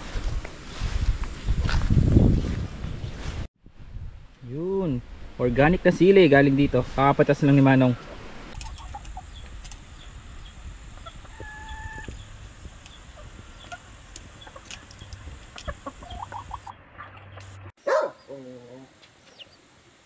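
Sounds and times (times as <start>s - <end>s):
chickens clucking: 8.0s - 17.7s.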